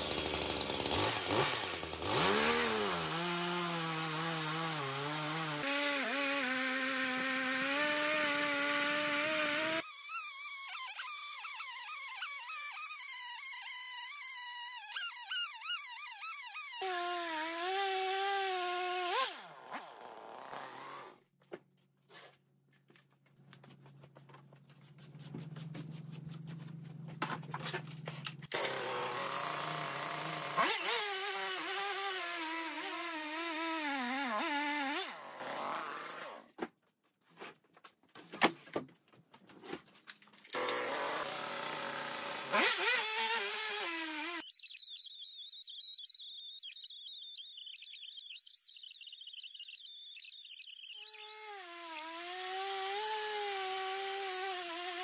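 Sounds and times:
chainsaw cutting log: 0.0s - 21.2s, 28.5s - 36.5s, 40.5s - 55.0s.

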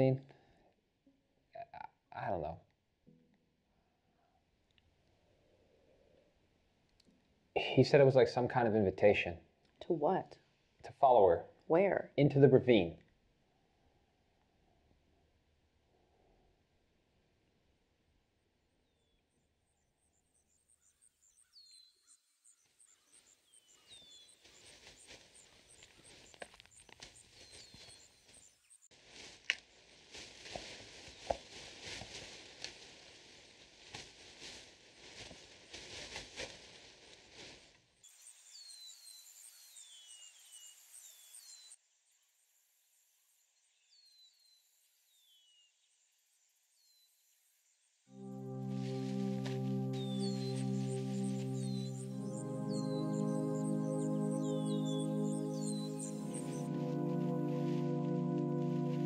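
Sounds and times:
soft rustling: 23.9s - 38.0s
bird chirping: 48.3s - 59.0s.

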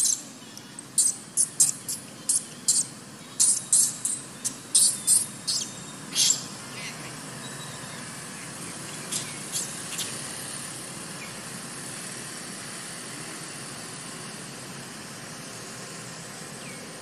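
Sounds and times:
baby monkey squeaking: 1.0s - 6.9s.

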